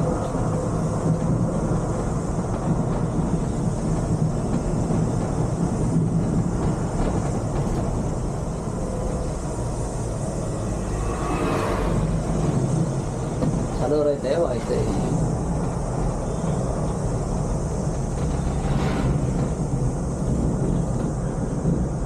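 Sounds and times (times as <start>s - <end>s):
diesel engine rumbling: 0.0s - 22.0s
tyre and road noise: 0.0s - 22.0s.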